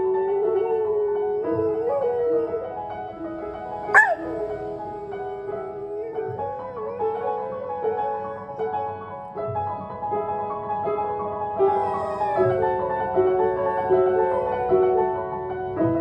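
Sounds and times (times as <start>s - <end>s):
dog howling: 0.0s - 8.9s, 11.6s - 15.2s
slow piano music: 0.0s - 16.0s
dog whimpering: 0.9s - 8.7s, 11.6s - 14.8s
dog yelping: 3.7s - 8.6s, 11.6s - 12.9s.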